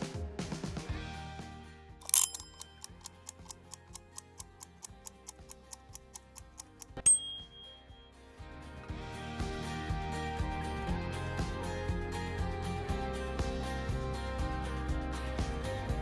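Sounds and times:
clock ticking: 0:02.0 - 0:07.9
bright ding: 0:07.0 - 0:08.1.

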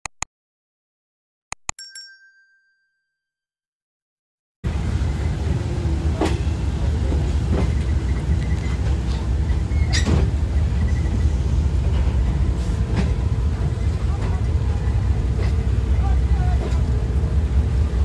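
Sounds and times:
train rumble: 0:04.6 - 0:18.0.

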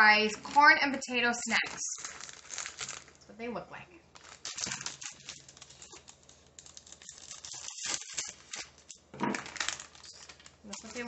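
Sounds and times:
snack bag rustling: 0:01.4 - 0:03.2, 0:04.1 - 0:11.0.

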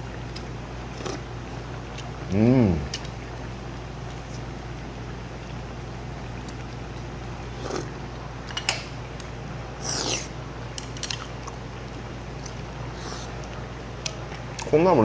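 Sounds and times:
steady low hum: 0:00.0 - 0:15.0
person slurping soup: 0:01.0 - 0:01.2, 0:07.5 - 0:08.0, 0:09.8 - 0:10.4, 0:12.9 - 0:13.4
chewing: 0:02.8 - 0:03.2, 0:09.8 - 0:14.7.

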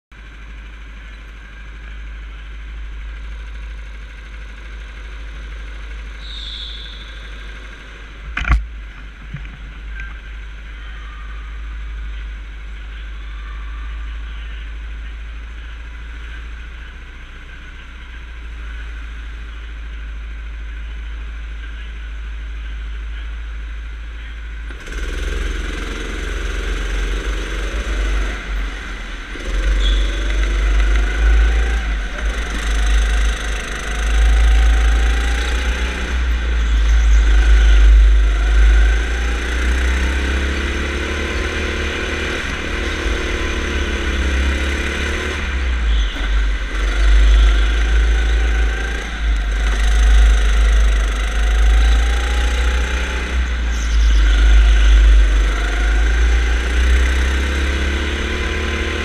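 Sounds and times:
go-kart engine revving: 0:00.2 - 0:20.6, 0:24.4 - 0:59.0.

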